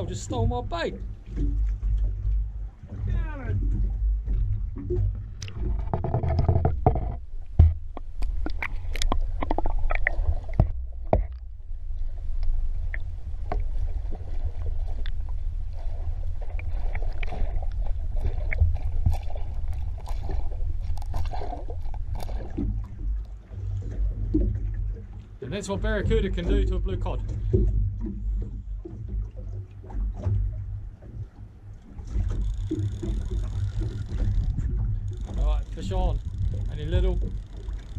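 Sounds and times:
underwater rumble and wash: 0.0s - 37.9s
underwater clicks and pops: 3.6s - 11.5s, 16.5s - 25.1s, 31.8s - 37.9s.

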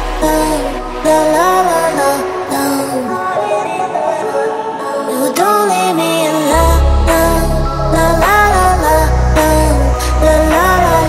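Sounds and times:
deep bass line: 0.0s - 2.5s, 6.5s - 11.0s.

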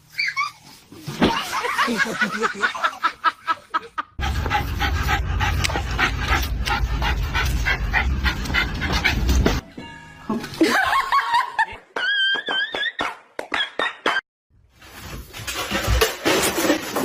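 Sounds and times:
steady low rumble: 4.2s - 9.6s.

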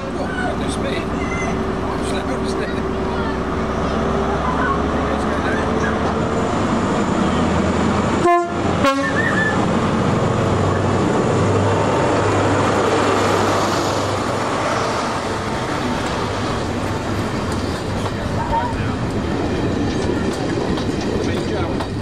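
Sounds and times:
diesel engine and train running: 0.0s - 22.0s
locomotive horn blasts: 8.2s - 9.5s.

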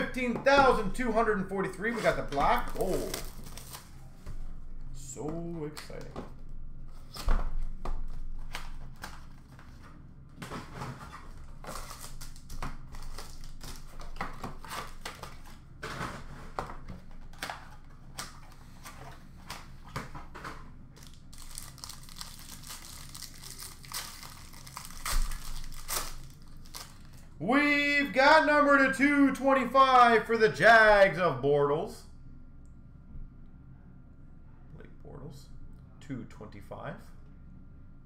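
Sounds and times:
cardboard crinkling and tearing: 1.8s - 3.9s, 10.7s - 16.3s, 21.0s - 27.2s.

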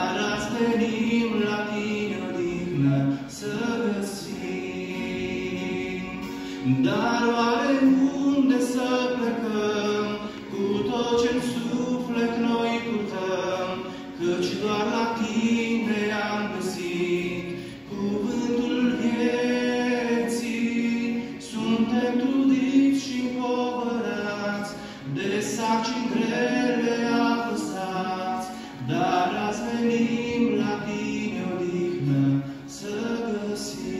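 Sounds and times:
acoustic guitar strumming: 0.0s - 33.9s
man singing worship song: 0.0s - 33.9s.

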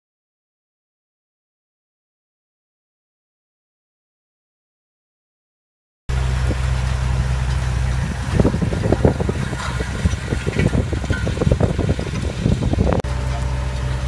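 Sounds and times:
low thumps and rattles: 6.1s - 14.0s
tractor engine humming: 6.1s - 14.0s.

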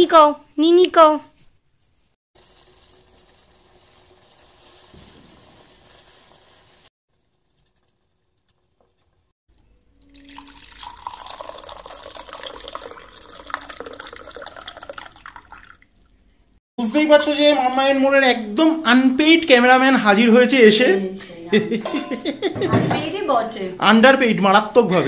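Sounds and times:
water boiling in a pot: 2.4s - 9.3s, 9.9s - 16.4s
tea pouring into a mug: 9.6s - 16.3s.

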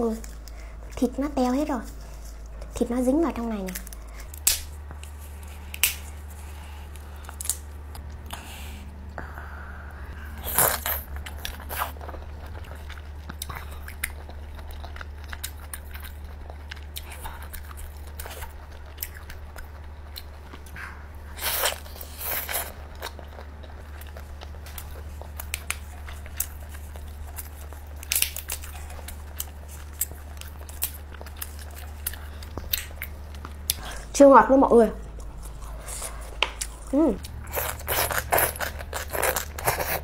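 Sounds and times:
steady low hum: 0.0s - 40.0s
shell cracking and clicking: 3.7s - 5.0s, 28.0s - 28.6s
biting and chewing: 10.3s - 34.1s, 35.0s - 40.0s.

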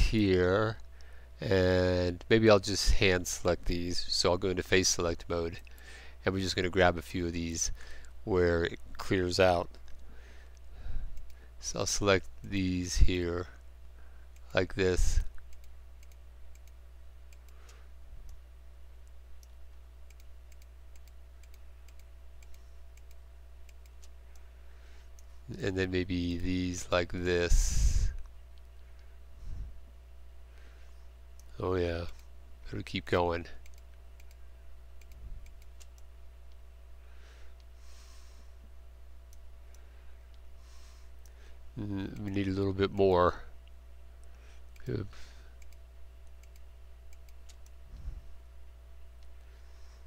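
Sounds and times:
low electrical hum: 0.0s - 50.0s
soft breath: 5.7s - 6.2s, 10.0s - 11.6s, 49.4s - 50.0s
computer mouse clicks: 15.2s - 18.4s, 19.0s - 24.5s, 33.6s - 34.4s, 35.0s - 36.6s, 45.6s - 47.8s.

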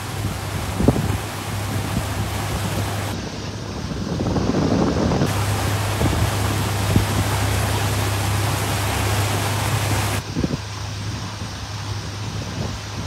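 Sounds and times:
boat motor humming: 0.0s - 3.2s, 5.3s - 10.9s
loud rushing hiss: 0.0s - 11.8s.

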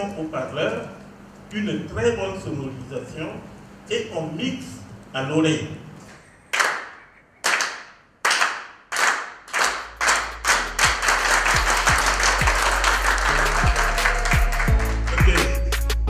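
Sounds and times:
group clapping in unison: 6.5s - 16.0s
music with heavy bass beat: 10.2s - 16.0s.

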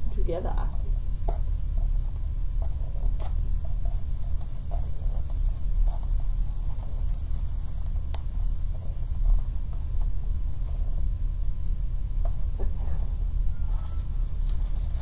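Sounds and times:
wrapping paper rustling: 1.9s - 11.0s, 12.3s - 15.0s.

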